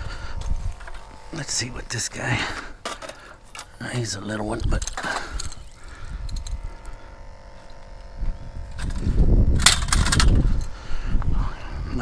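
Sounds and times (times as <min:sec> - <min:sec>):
wind rumbling on microphone: 0:00.0 - 0:01.9, 0:04.3 - 0:12.0.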